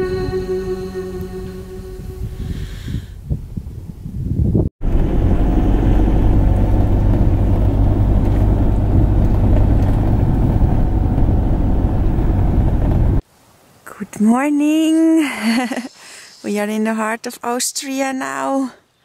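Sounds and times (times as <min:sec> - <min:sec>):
van engine and road noise: 0:04.8 - 0:13.2.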